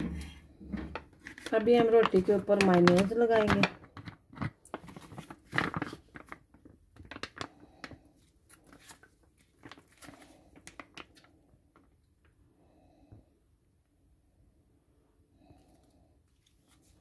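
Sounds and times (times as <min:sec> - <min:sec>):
plastic pouch crinkling: 0:00.9 - 0:12.0.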